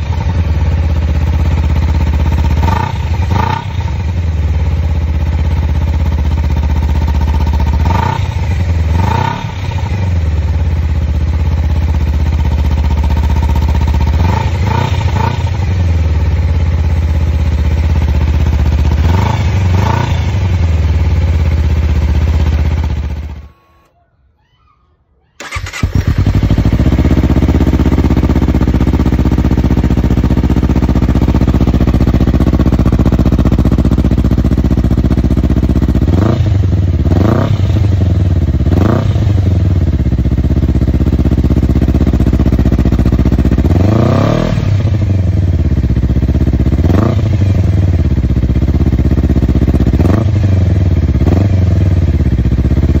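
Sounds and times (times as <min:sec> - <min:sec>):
motorcycle engine idling: 0:00.0 - 0:23.5, 0:25.4 - 0:53.0
engine throttle blips: 0:25.4 - 0:28.2.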